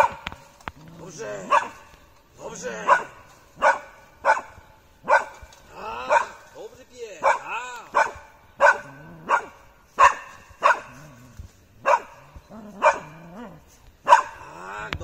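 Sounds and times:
dog barking: 1.4 - 1.8, 2.8 - 5.4, 6.0 - 6.4, 7.2 - 11.1, 11.8 - 14.5.

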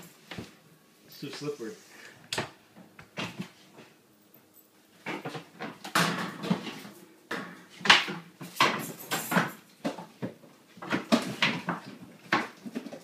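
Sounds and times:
objects knocking and clattering: 4.9 - 13.0.

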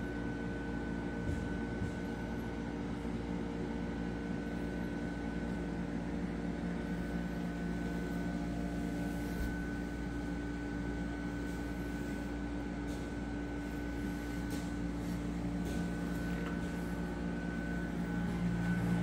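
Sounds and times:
aquarium pumps humming: 0.0 - 19.0.

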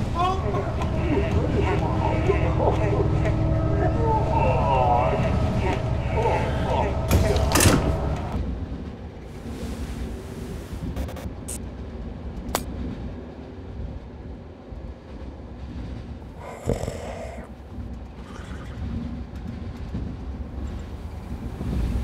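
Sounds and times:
train carriage rumble: 0.0 - 22.0
man snoring: 16.4 - 17.5.

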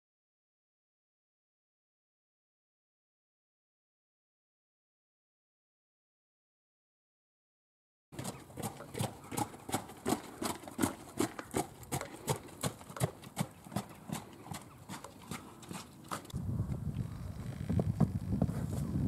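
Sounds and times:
horse hooves trotting on gravel: 8.2 - 16.9.

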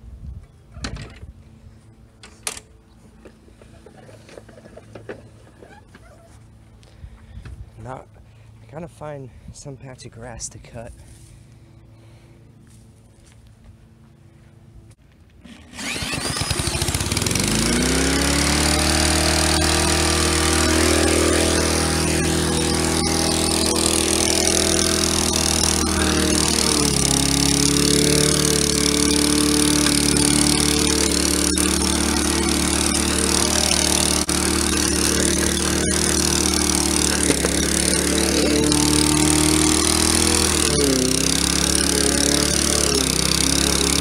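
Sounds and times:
lawnmower engine running: 10.3 - 44.0.

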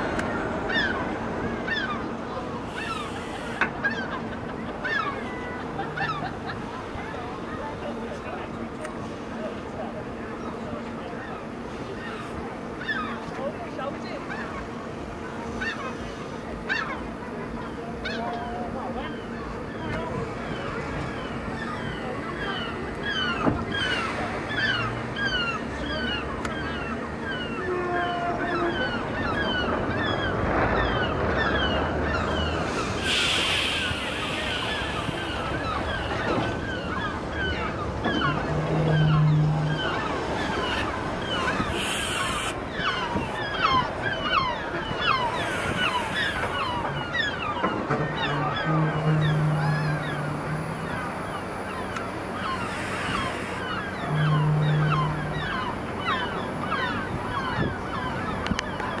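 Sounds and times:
tram rolling past: 0.0 - 59.0
birds chirping: 19.7 - 59.0
hiss burst: 32.9 - 35.4
low steady hum: 46.9 - 58.6.

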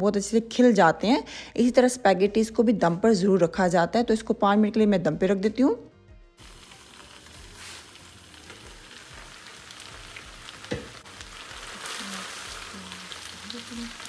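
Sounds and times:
faint background music: 0.0 - 14.0
noodles sizzling in frying pan: 6.4 - 14.0.

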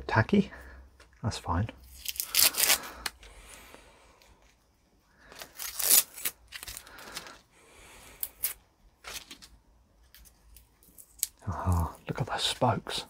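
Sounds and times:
tape peeling and crumpling: 1.8 - 3.3, 5.2 - 7.4, 8.2 - 12.1.

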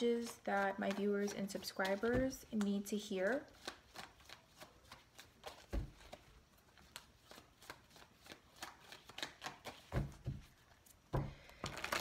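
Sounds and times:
cards being shuffled: 3.5 - 12.0.

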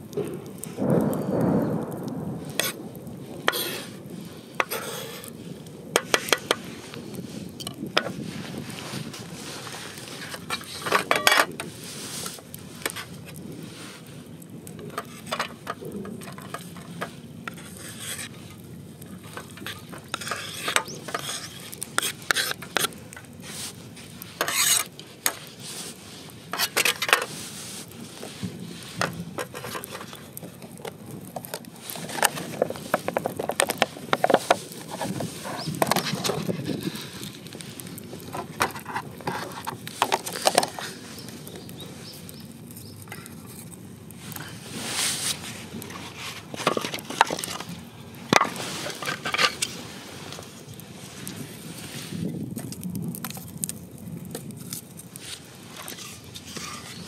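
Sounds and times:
utensils clinking and scraping: 9.5 - 13.1, 14.8 - 18.6, 19.2 - 23.7, 24.4 - 25.5, 26.5 - 27.4, 29.0 - 36.6, 44.9 - 47.7, 48.3 - 50.4.

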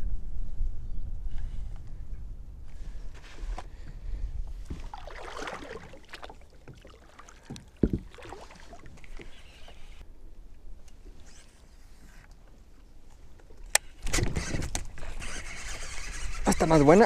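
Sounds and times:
wind rumble on microphone: 0.0 - 5.1
water splashing: 4.6 - 9.9
knocks on kayak: 7.8 - 8.2.

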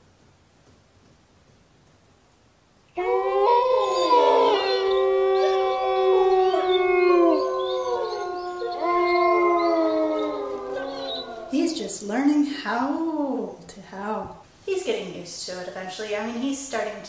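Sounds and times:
long drawn-out howling: 3.0 - 11.9.

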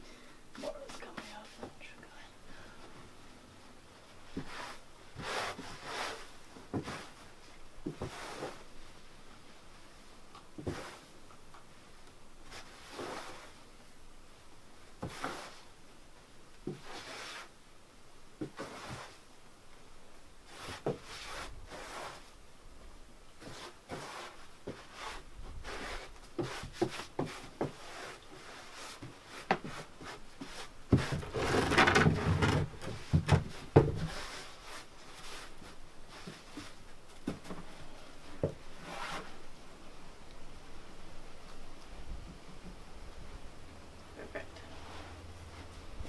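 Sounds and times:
knocks and scrapes against tub: 30.4 - 34.4.

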